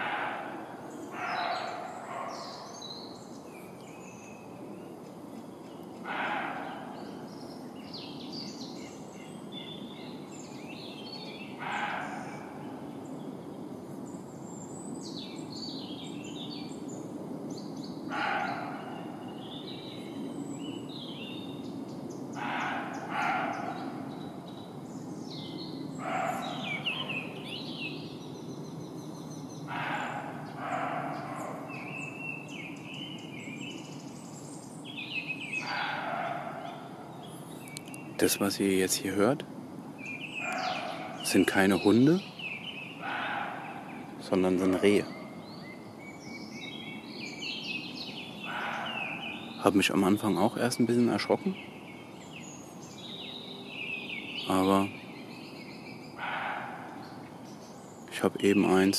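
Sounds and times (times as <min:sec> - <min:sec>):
deer barking: 0:00.0 - 0:02.6, 0:06.1 - 0:06.9, 0:11.6 - 0:12.6, 0:18.1 - 0:19.1, 0:22.4 - 0:24.2, 0:26.0 - 0:27.2, 0:29.7 - 0:31.9, 0:35.6 - 0:37.0, 0:40.4 - 0:41.4, 0:43.0 - 0:45.3, 0:48.4 - 0:49.4, 0:56.2 - 0:57.2
birds chirping: 0:00.0 - 0:58.9.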